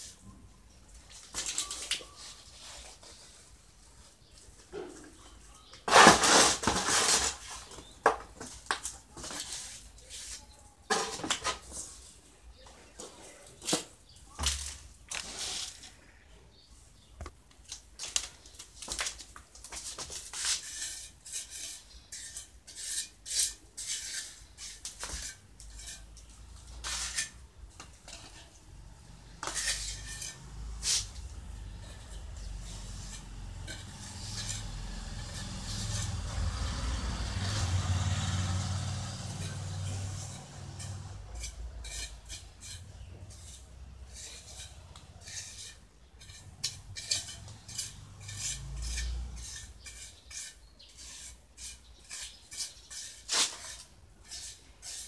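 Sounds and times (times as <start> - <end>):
trowel scraping and tapping on mortar: 17.2 - 28.6, 29.2 - 36.5, 39.2 - 55.0.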